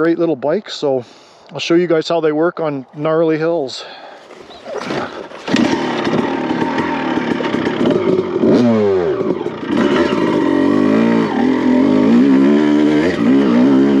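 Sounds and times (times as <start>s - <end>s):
motorcycle engine revving hard: 4.8s - 14.0s.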